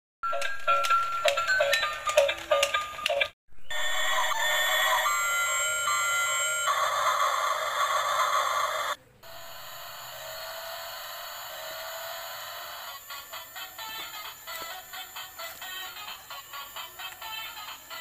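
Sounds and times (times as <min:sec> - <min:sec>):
toy electronic melody: 0:00.3 - 0:18.0
toy beeping tones: 0:03.7 - 0:18.0.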